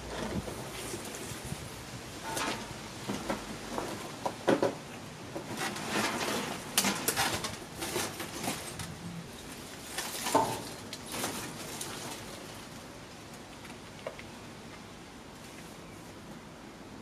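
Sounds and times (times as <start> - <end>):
rustling in brambles: 5.4 - 13.9.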